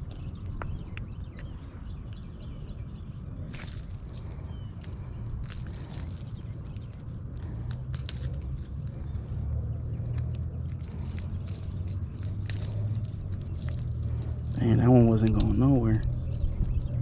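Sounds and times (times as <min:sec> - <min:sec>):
wind rumble on microphone: 0:00.0 - 0:17.0
fishing lure clicks and crunches: 0:03.4 - 0:09.3, 0:10.0 - 0:17.0.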